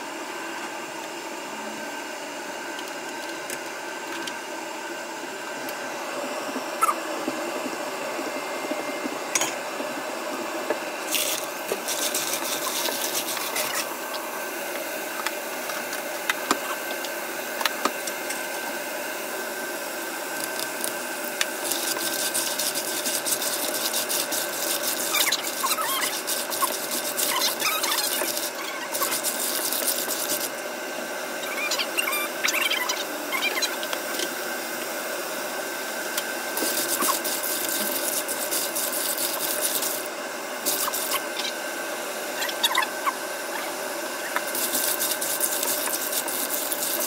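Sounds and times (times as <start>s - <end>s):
oil sizzling: 11.0s - 13.9s.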